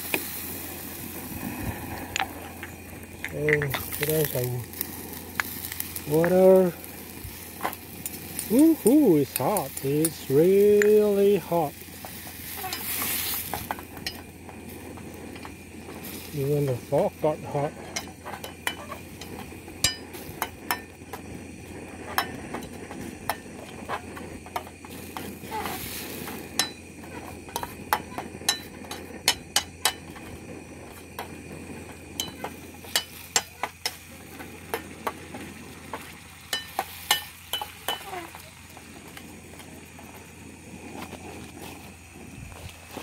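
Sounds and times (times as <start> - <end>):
paste sizzling: 0.0 - 43.0
metal fork scraping frying pan: 12.4 - 14.2.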